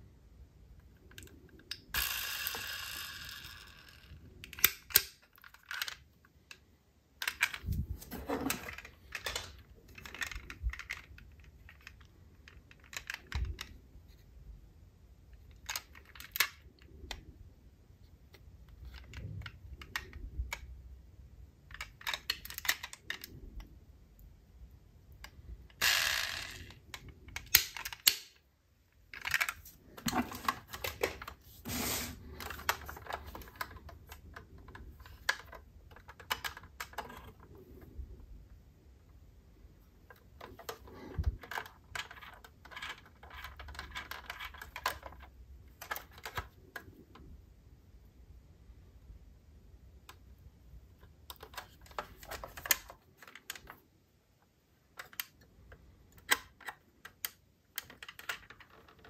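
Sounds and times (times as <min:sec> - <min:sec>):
toy car parts clicking and tapping: 0:01.0 - 0:06.6, 0:07.2 - 0:07.8, 0:08.6 - 0:13.8, 0:15.4 - 0:17.2, 0:21.7 - 0:23.7, 0:25.2 - 0:28.4, 0:32.4 - 0:37.4, 0:40.0 - 0:47.1, 0:54.9 - 0:59.0
longer handling noise: 0:29.0 - 0:38.1.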